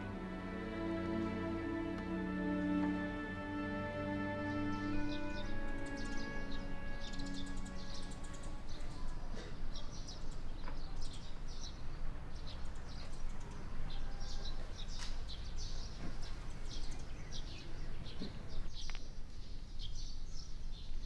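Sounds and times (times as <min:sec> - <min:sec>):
small birds chirping: 0:04.0 - 0:21.0.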